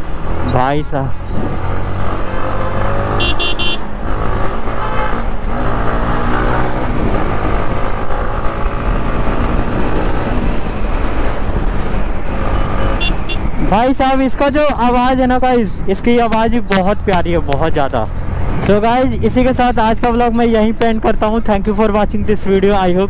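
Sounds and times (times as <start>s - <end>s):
motorcycle engine revving: 0.0s - 13.7s.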